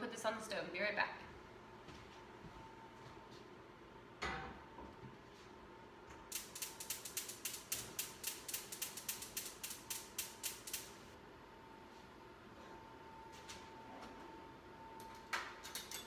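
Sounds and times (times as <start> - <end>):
gas stove igniter clicking: 6.3 - 11.0.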